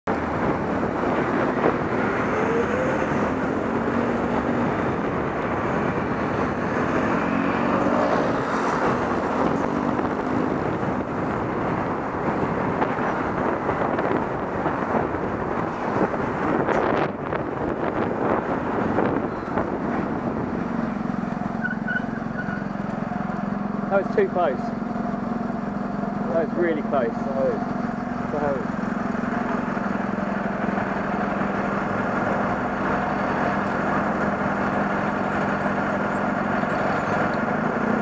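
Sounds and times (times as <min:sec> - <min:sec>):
road traffic rush: 0:00.0 - 0:38.0
motor scooters passing: 0:01.1 - 0:10.8.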